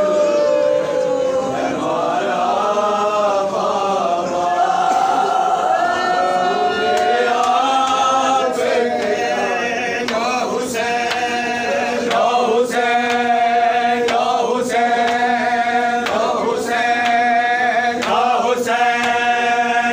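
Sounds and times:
men chanting together: 0.0 - 19.9
chest-beating slaps: 12.0 - 13.4, 14.0 - 15.4, 16.0 - 17.3, 18.0 - 19.3.

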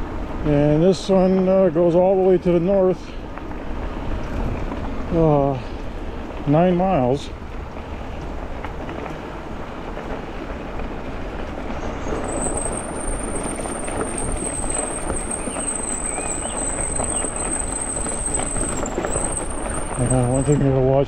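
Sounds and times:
tyre and wind rumble: 0.0 - 21.0.

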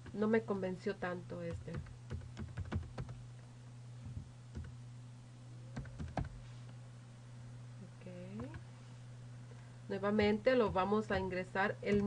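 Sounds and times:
steady low hum: 0.0 - 12.0
keyboard typing: 1.4 - 3.2, 4.5 - 4.8, 5.8 - 6.4.

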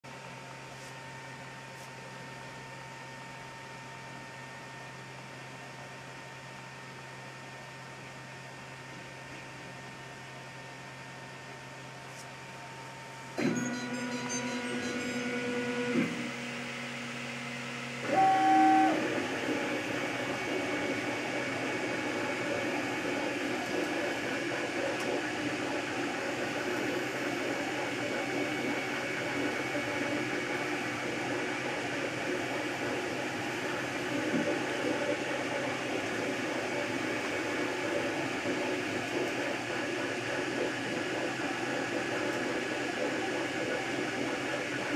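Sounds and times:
printer stepper motors whirring: 13.3 - 44.9.

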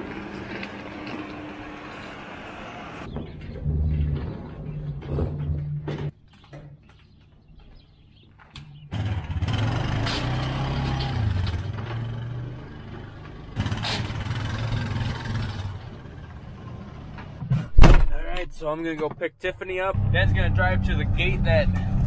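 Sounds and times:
vehicle engine running: 0.0 - 3.1.

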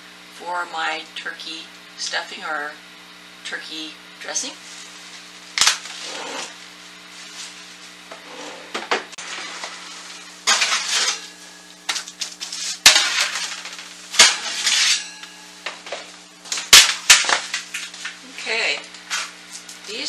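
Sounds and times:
metal sheets scraping on racks: 5.9 - 6.6, 8.1 - 11.6, 12.4 - 15.3
metal sheets clanking on glass: 9.2 - 11.6, 12.8 - 15.5.

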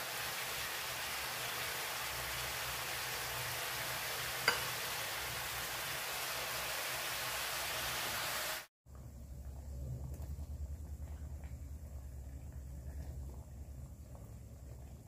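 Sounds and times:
fish frying in a wok: 0.0 - 8.7.

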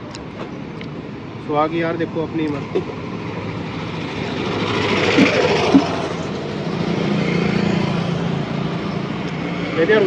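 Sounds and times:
street traffic: 0.0 - 10.0.

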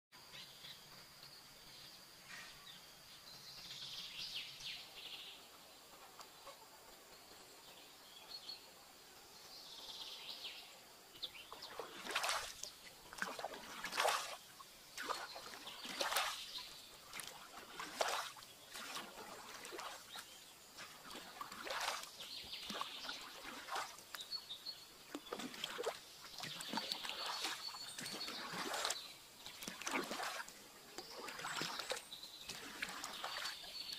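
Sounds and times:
water dripping: 11.5 - 20.2, 20.8 - 24.3, 25.1 - 33.9
pole splashing in water: 11.5 - 24.1, 25.1 - 33.6.

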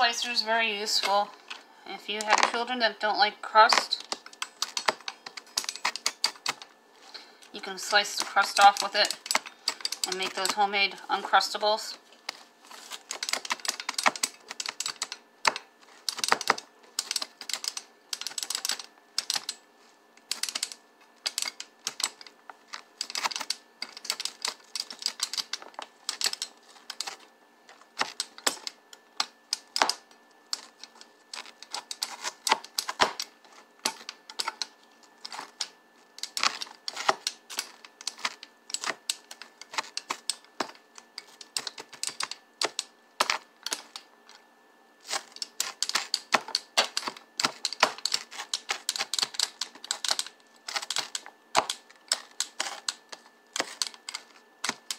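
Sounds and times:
pizza slicer clicking on cutting board: 13.0 - 19.6, 45.1 - 54.9.

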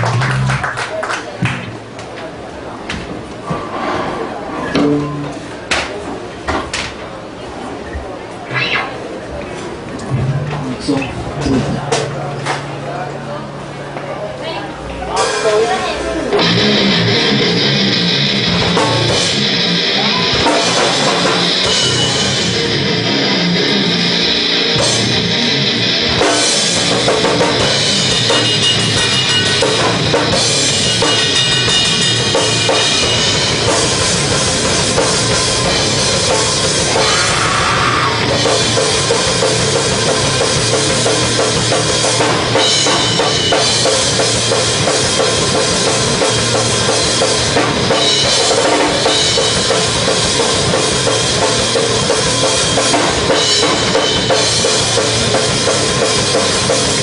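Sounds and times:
bass guitar: 0.0 - 0.8, 4.7 - 5.6, 9.8 - 13.8, 14.8 - 57.0
rock band playing: 0.0 - 0.8, 4.8 - 5.7, 15.1 - 57.0
electric guitar: 16.2 - 57.0.

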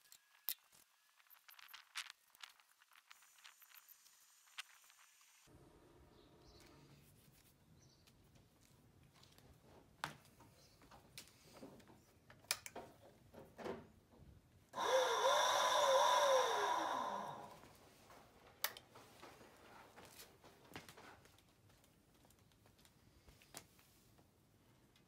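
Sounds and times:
electric scooter motor whirring: 14.8 - 17.6.

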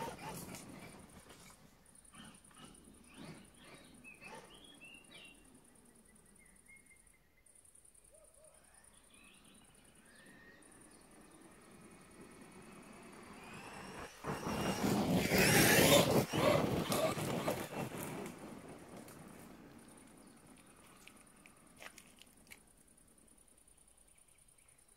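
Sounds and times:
tyres tearing across gravel: 0.0 - 1.5, 12.1 - 22.6
birds chirping: 0.0 - 22.5
electric motor whining: 12.8 - 18.3.

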